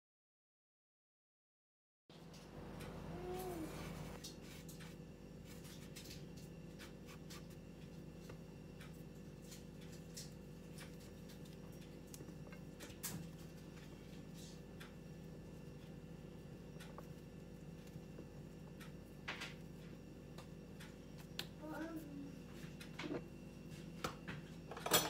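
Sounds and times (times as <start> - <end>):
steady low hum: 2.1 - 25.0
fingers rustling flour in a bowl: 3.4 - 21.5.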